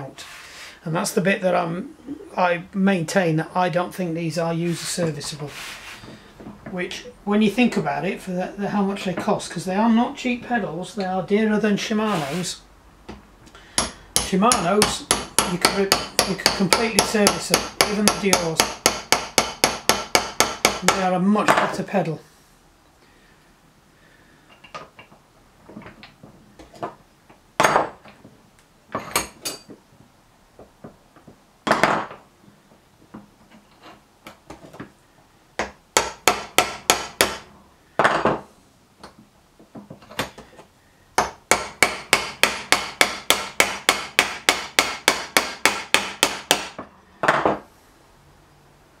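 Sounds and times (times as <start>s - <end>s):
hammer tapping metal: 13.8s - 21.0s, 35.6s - 37.4s, 41.2s - 46.8s.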